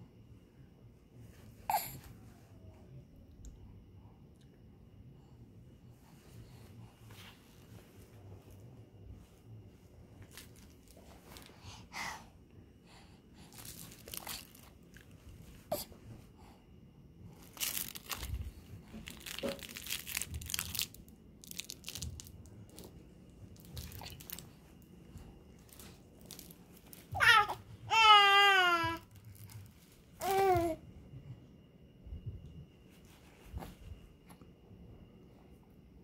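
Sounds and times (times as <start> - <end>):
rustling and crinkling handling noises: 7.0 - 11.6, 13.5 - 15.7, 17.3 - 30.8.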